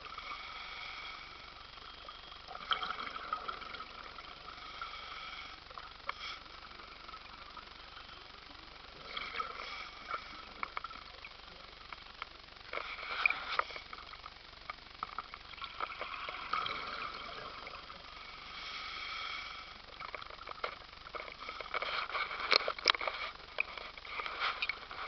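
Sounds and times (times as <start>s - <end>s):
underwater hiss: 0.0s - 8.2s, 8.9s - 11.6s, 12.7s - 14.2s, 15.5s - 20.2s
underwater clicks and crackles: 0.0s - 25.0s.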